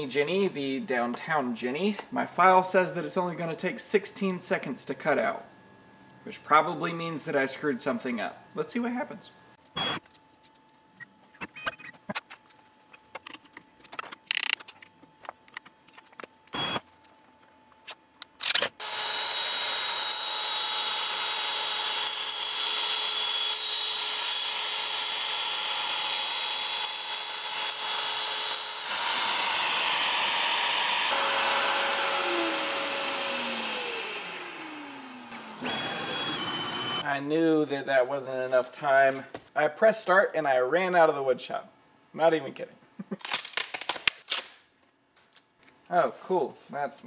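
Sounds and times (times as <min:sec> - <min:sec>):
router whining while cutting plastic: 0:18.4 - 0:37.0
router winding down: 0:18.5 - 0:37.0.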